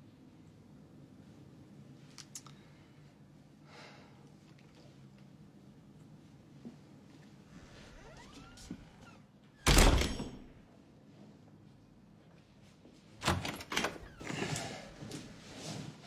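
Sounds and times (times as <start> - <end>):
door thudding shut: 9.6 - 10.6.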